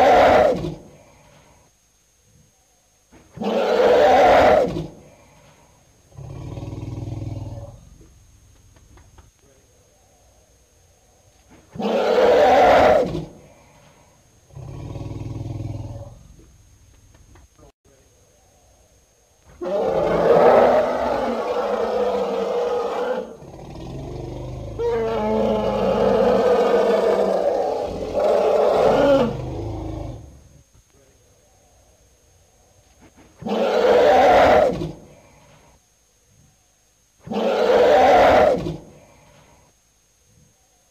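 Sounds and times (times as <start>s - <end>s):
elephant low buzzing call: 0.0s - 1.7s, 2.3s - 8.1s, 9.8s - 16.5s, 18.4s - 30.6s, 31.4s - 40.8s
elephants trumpeting: 33.4s - 34.8s, 37.3s - 38.7s.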